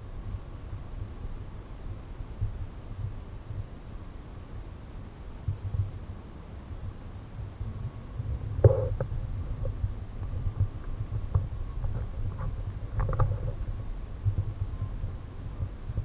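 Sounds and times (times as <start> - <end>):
low rumbling noise: 7.1 - 16.0.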